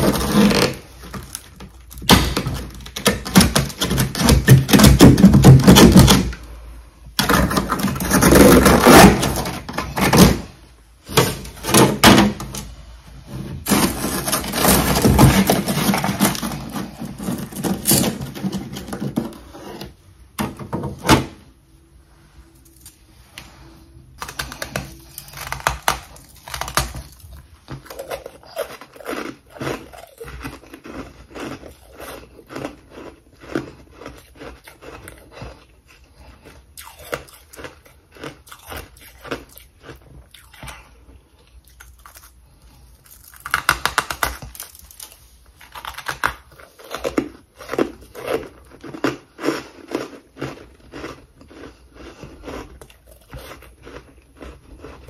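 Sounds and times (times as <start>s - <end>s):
person crunching ice: 13.6s - 19.9s, 24.2s - 40.5s, 43.0s - 55.0s.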